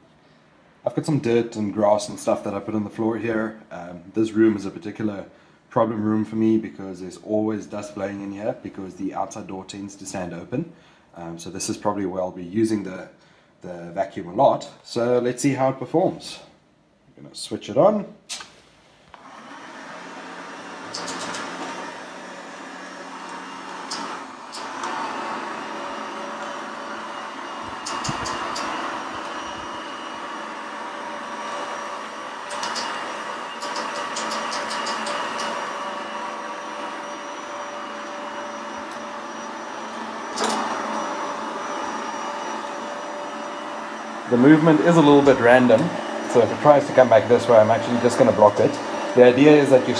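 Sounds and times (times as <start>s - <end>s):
robot vacuum motor running: 19.2s - 49.9s.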